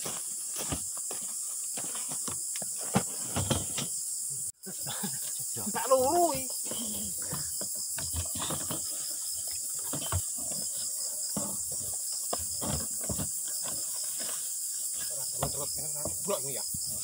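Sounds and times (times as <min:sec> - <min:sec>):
insects chorus: 0:00.0 - 0:17.0
equipment rustling in plastic drum: 0:07.2 - 0:17.0.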